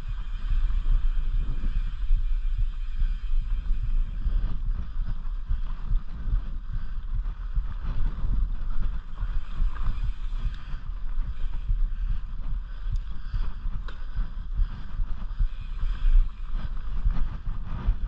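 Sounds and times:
mountain bike rattling on dirt trail: 0.0s - 18.0s
wind buffeting microphone: 0.0s - 18.0s.

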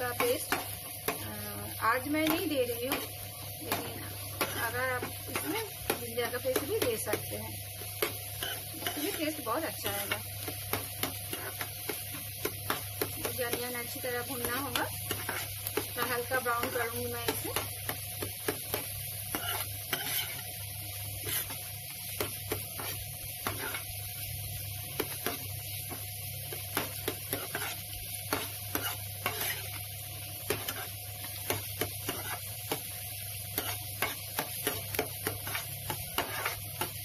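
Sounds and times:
onions sizzling in oil: 0.0s - 37.0s
metal spatula scraping a pan: 7.9s - 17.7s, 18.4s - 20.6s, 21.2s - 21.6s, 22.2s - 24.0s, 26.8s - 29.8s, 30.4s - 32.8s, 33.5s - 37.0s.

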